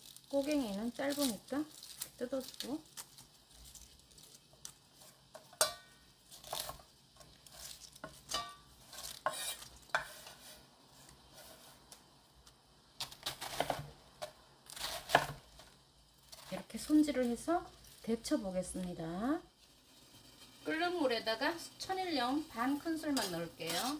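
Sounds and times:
cabbage leaves tearing: 0.0s - 5.1s, 6.3s - 8.0s
knife slicing on wooden board: 8.9s - 10.6s.

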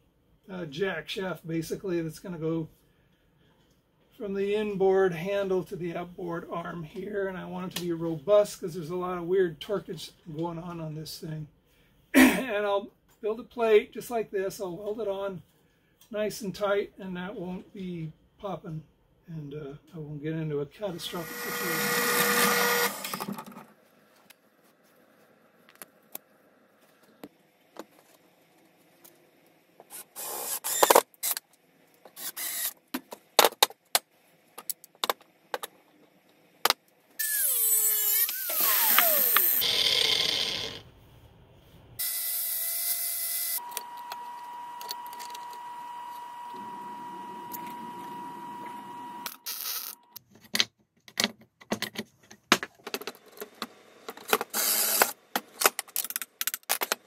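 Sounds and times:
power tool running: 20.9s - 23.5s, 29.9s - 31.4s, 32.2s - 32.8s, 37.2s - 40.8s, 42.0s - 50.2s, 54.5s - 55.2s
angle grinder cutting steel: 21.0s - 23.2s, 37.2s - 40.8s, 42.0s - 50.2s, 54.5s - 55.2s.

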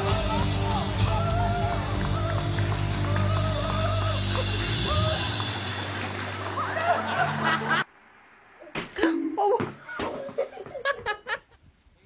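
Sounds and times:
music with singing: 0.0s - 7.7s
people laughing: 6.2s - 7.9s, 10.0s - 11.6s.

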